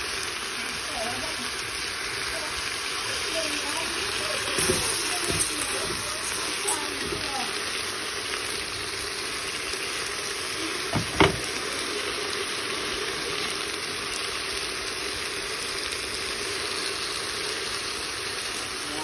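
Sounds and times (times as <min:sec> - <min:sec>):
food sizzling in a pot: 0:00.0 - 0:19.0
sharp knocks: 0:10.9 - 0:11.5.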